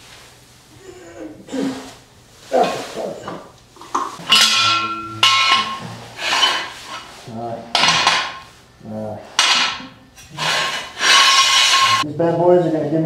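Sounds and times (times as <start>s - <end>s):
floor jack metal clanking: 4.2s - 7.1s, 7.7s - 8.5s, 9.4s - 12.0s.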